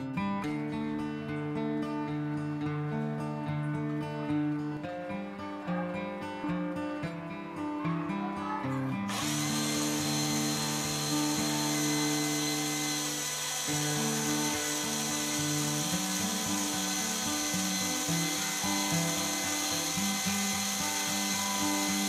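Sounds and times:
acoustic guitar music: 0.0 - 22.0
small motor whining: 9.1 - 22.0.

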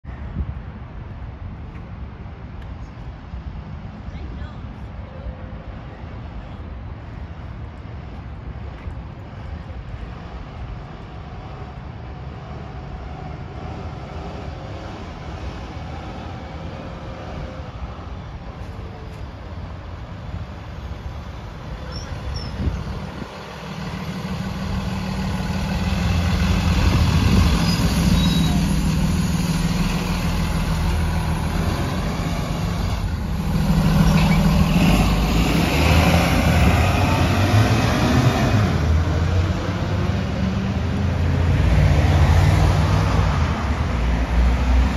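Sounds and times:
bus diesel engine accelerating past: 9.2 - 44.9.

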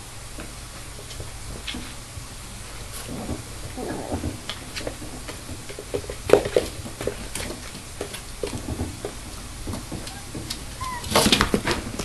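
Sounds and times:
puppy claws tapping on cardboard: 4.1 - 12.0.

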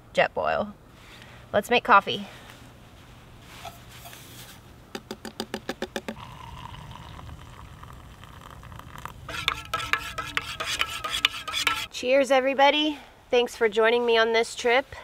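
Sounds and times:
water pouring into metal mug: 6.2 - 11.9
spoon clinking against metal mug: 9.3 - 11.9.

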